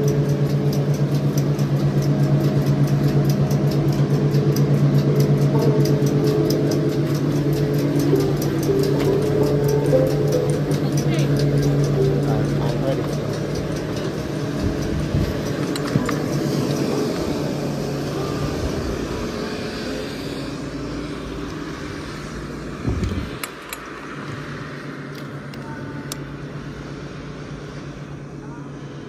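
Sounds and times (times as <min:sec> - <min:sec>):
chairlift mechanical hum: 0:00.0 - 0:29.0.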